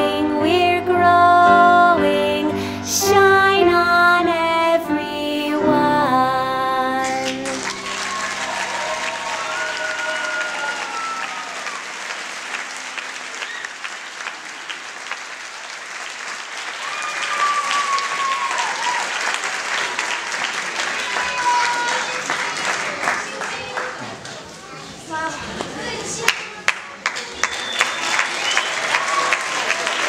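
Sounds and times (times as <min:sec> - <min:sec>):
audience applauding: 0:07.0 - 0:24.5, 0:26.2 - 0:30.0
voices calling out: 0:07.6 - 0:11.7.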